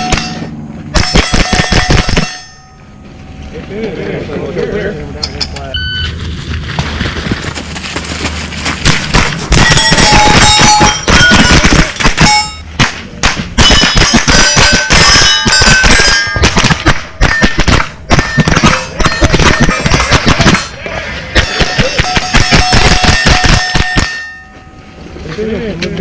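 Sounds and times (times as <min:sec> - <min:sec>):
steel plates ringing: 0:00.0 - 0:03.6, 0:09.5 - 0:12.8, 0:13.6 - 0:25.2
rapid rifle fire: 0:01.0 - 0:02.5, 0:08.8 - 0:20.7, 0:21.4 - 0:24.2.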